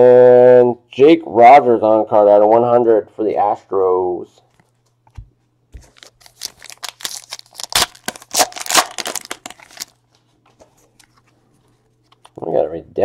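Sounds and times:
foil wrapper tearing and crinkling: 5.9 - 10.0.

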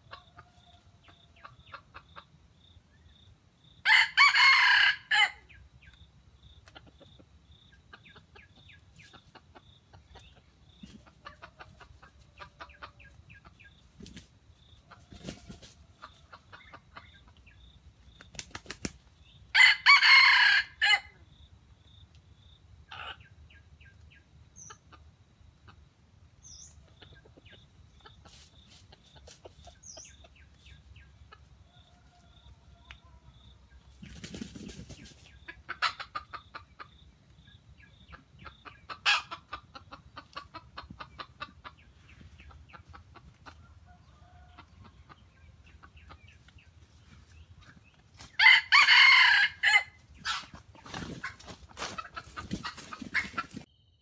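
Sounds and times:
junglefowl clucking: 0.0 - 2.4, 6.6 - 17.6, 22.8 - 23.9, 34.0 - 37.0, 37.9 - 47.4, 48.2 - 53.7
rooster crowing: 3.8 - 5.4, 19.5 - 21.1, 48.4 - 50.0.

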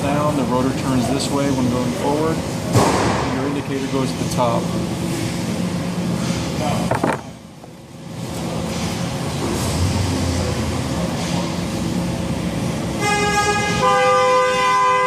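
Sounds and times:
repair shop background noise: 0.0 - 15.0
loud steady horn: 12.8 - 15.0.

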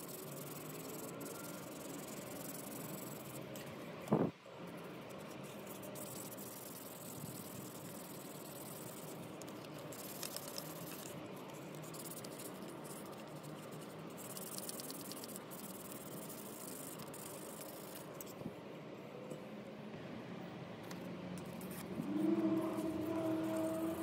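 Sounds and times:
sandpaper rubbing on plastic: 21.5 - 24.0.

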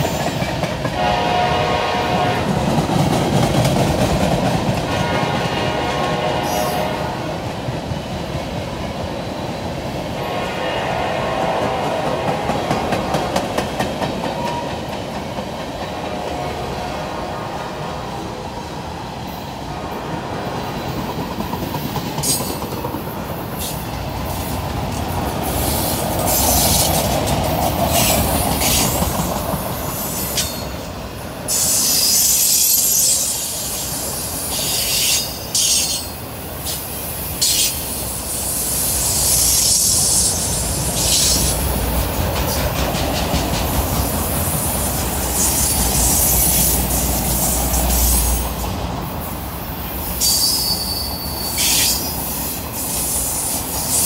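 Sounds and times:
train wheels rumbling and clattering: 0.0 - 54.0
high-pitched wheel squeal: 31.5 - 36.1, 50.2 - 52.3.

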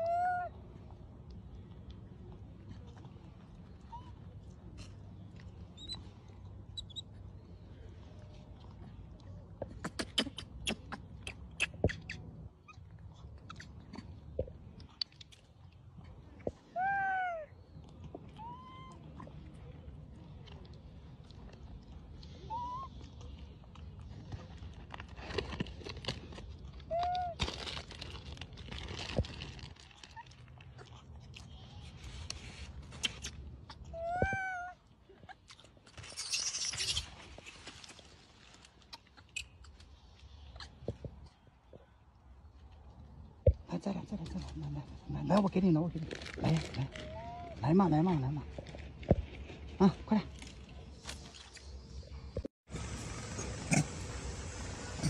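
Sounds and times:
macaques squeaking: 5.8 - 6.1, 6.7 - 7.1, 9.8 - 12.8
rustling hiss: 52.7 - 55.0.

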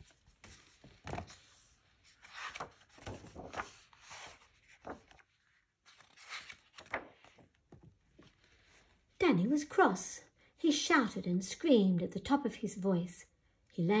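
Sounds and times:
paper pages rustling: 0.0 - 9.0.

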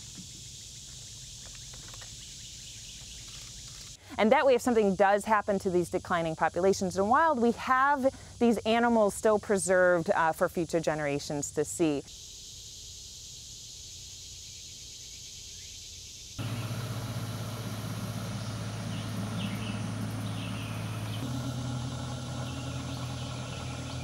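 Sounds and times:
steady low hum: 16.4 - 24.0.

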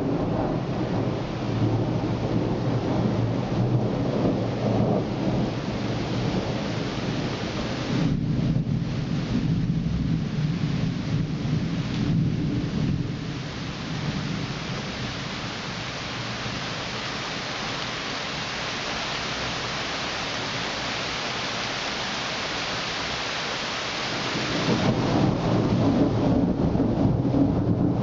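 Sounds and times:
thunder rumbling: 0.0 - 16.6, 24.1 - 28.0
rain falling: 0.0 - 28.0.

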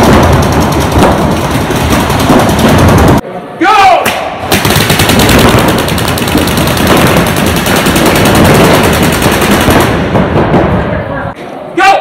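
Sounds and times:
paintball marker firing shots: 4.1 - 10.2.

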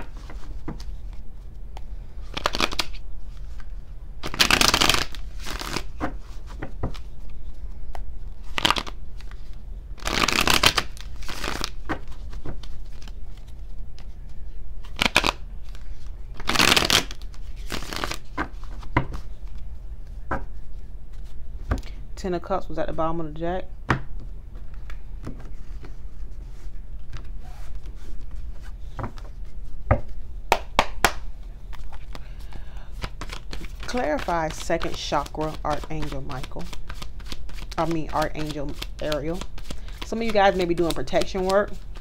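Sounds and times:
cards being shuffled: 1.8 - 19.7, 32.9 - 42.0.

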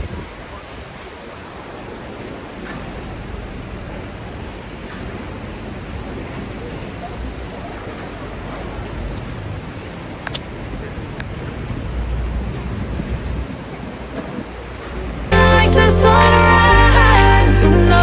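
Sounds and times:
wind rushing on microphone: 0.0 - 2.4, 9.2 - 15.3
waves slapping boat hull: 0.0 - 15.4.

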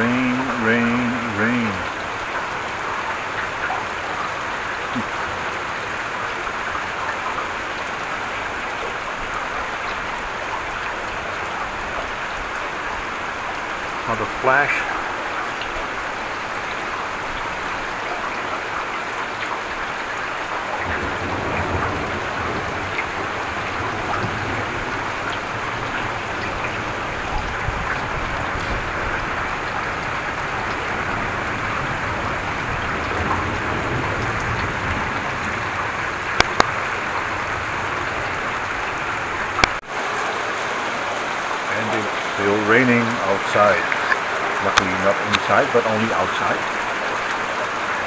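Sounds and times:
heavy rain: 0.0 - 48.0
thunder rumbling: 20.5 - 39.6
sharp clicks: 36.4 - 36.7.

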